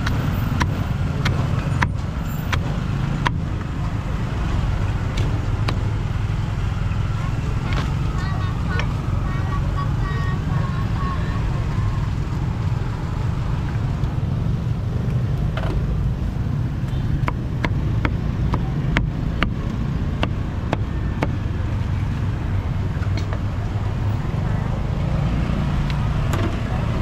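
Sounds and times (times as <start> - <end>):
cleaver chopping on a block: 0.0 - 3.4, 17.2 - 21.4
street traffic rumble: 0.0 - 27.0.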